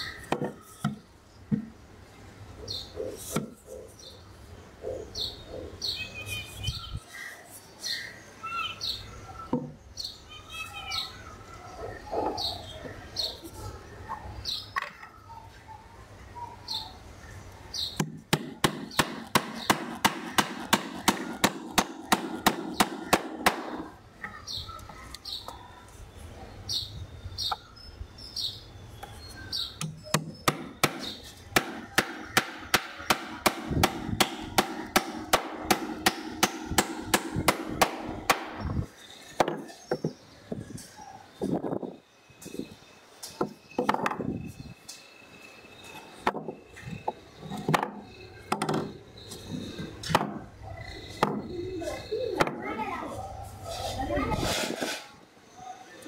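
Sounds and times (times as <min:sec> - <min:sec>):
birds chirping: 0:00.0 - 0:54.4
hammer striking nail into wood: 0:18.0 - 0:23.8, 0:29.8 - 0:38.6.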